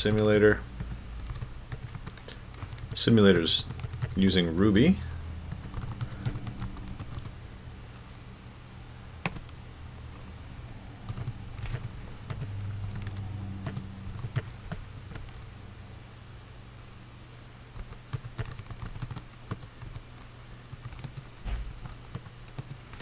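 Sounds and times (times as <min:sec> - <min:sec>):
computer keyboard typing: 0:00.0 - 0:04.3, 0:05.5 - 0:07.4, 0:09.2 - 0:10.3, 0:11.0 - 0:15.5, 0:17.8 - 0:23.0
low steady hum: 0:00.0 - 0:23.0.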